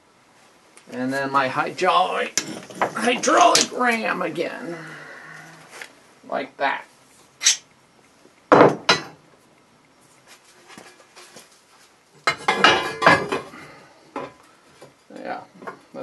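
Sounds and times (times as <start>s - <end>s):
clattering knocks and rattles: 2.4s - 3.7s.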